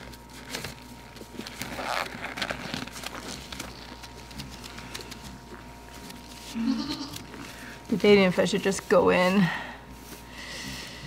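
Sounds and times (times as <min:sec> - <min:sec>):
small clicks and crackles: 0:00.0 - 0:07.4.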